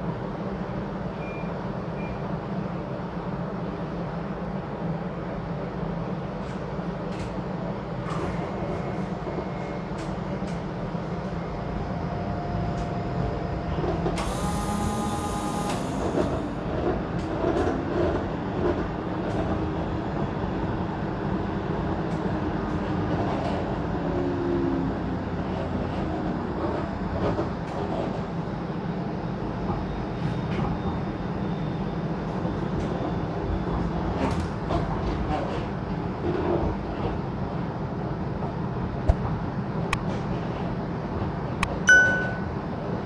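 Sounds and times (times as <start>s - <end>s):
streetcar rumbling on rails: 0.0s - 43.0s
air hiss: 14.2s - 16.0s.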